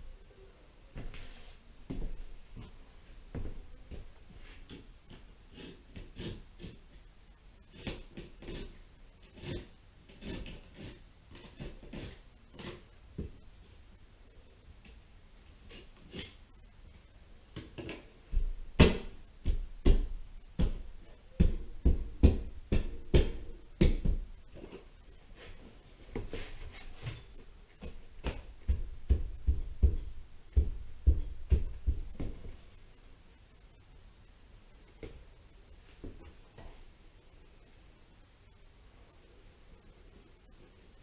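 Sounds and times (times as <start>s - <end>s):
dull thumps and knocks on drywall: 17.6s - 24.8s, 26.2s - 32.6s.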